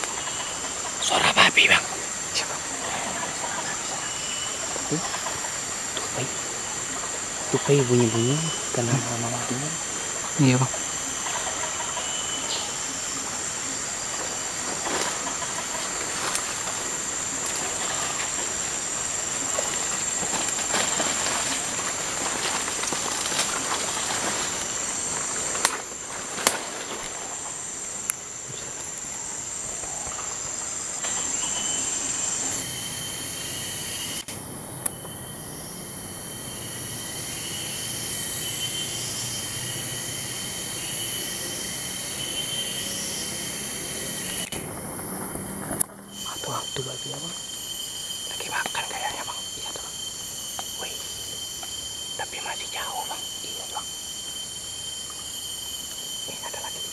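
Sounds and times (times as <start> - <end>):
insects droning: 0.0 - 56.9
footsteps through undergrowth: 14.6 - 18.6, 19.4 - 27.4
sharp snaps: 25.6 - 25.8.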